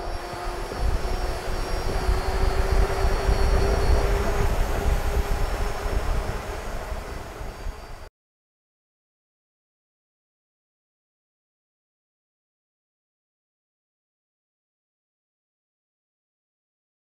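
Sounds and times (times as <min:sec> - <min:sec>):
electric drive whine: 0:00.0 - 0:08.1.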